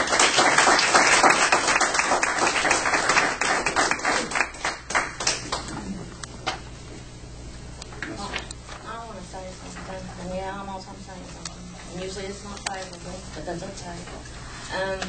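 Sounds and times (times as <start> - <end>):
people applauding: 0.0 - 5.9.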